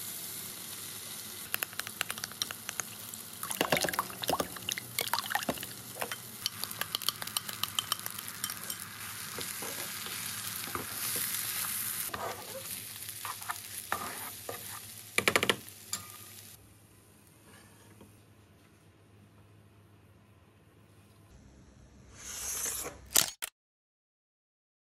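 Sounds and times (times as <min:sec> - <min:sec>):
egg sizzling in frying pan: 0:00.0 - 0:16.6
eggs beaten in glass bowl: 0:01.6 - 0:08.8
spatula scraping pan: 0:06.0 - 0:14.9.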